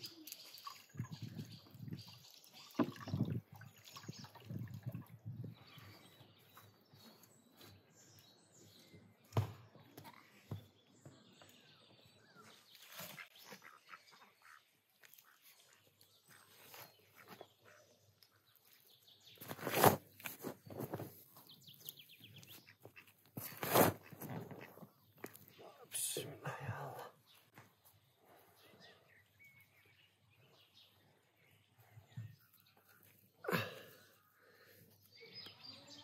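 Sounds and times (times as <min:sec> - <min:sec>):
shovel digging into soil: 0:23.4 - 0:24.2
faint bird chirps: 0:25.2 - 0:36.0.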